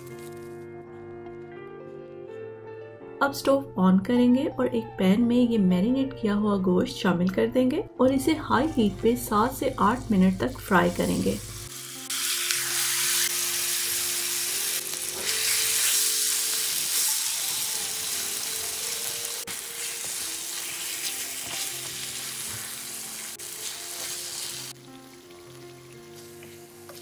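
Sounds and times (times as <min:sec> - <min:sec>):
meat sizzling in a pan: 0:09.4 - 0:27.0.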